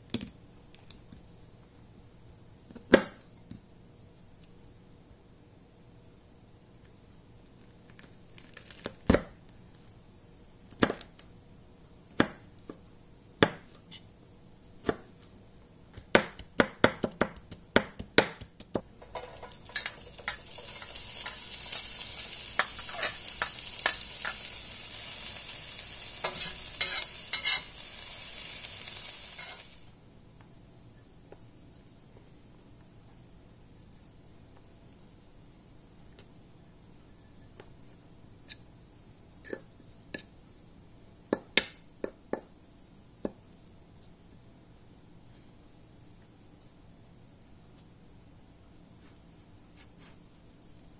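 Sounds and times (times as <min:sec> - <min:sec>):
knife chopping on plastic board: 0:15.9 - 0:18.9
onions sizzling in frying pan: 0:19.0 - 0:30.0.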